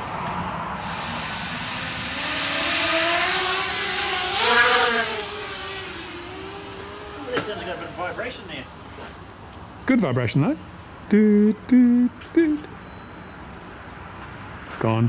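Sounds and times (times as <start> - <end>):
quadcopter motors whining: 0.6 - 9.0.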